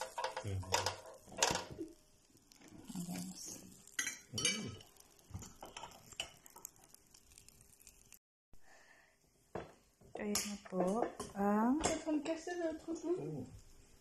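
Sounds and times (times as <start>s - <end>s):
utensils clinking against plates: 0.0s - 1.8s, 3.9s - 5.0s.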